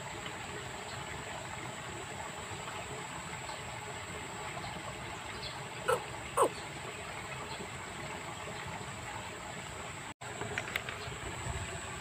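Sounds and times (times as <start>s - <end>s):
trickling water: 0.0s - 12.0s
animal calls falling in pitch: 5.9s - 6.5s.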